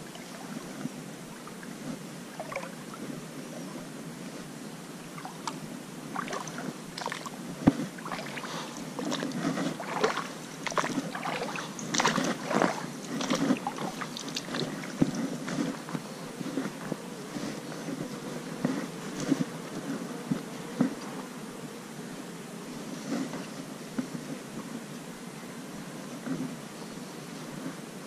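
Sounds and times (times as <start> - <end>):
water sloshing: 1.3 - 3.0, 5.1 - 16.9
footsteps through mud and leaves: 6.3 - 18.4.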